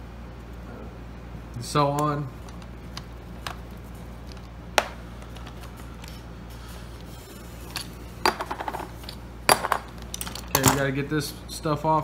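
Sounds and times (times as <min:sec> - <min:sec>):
steady low hum: 0:00.0 - 0:12.0
small metal parts clicking: 0:10.0 - 0:10.9.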